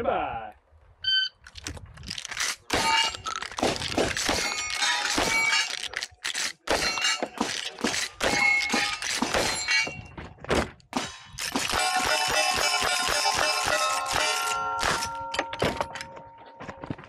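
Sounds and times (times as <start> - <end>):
shotgun slide racking: 1.4 - 6.6
steel targets ringing: 2.7 - 3.3, 4.4 - 5.8, 6.6 - 10.1, 11.0 - 16.6.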